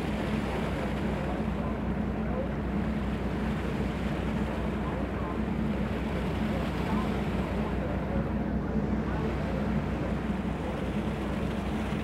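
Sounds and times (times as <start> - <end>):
sea wash: 0.0 - 12.0
ship engine humming: 0.0 - 12.0.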